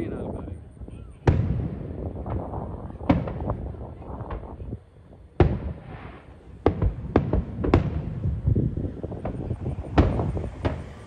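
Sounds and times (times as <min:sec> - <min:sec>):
fireworks bursting with bangs: 0:00.0 - 0:11.0
rumbling echo: 0:00.0 - 0:11.0
small firework pops: 0:00.8 - 0:04.8, 0:05.4 - 0:08.1, 0:09.1 - 0:11.0.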